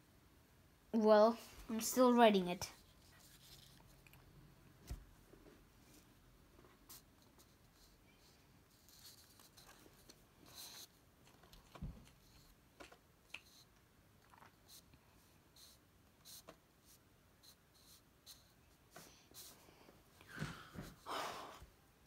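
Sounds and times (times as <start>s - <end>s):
pencil scratching on paper: 15.6s - 18.5s.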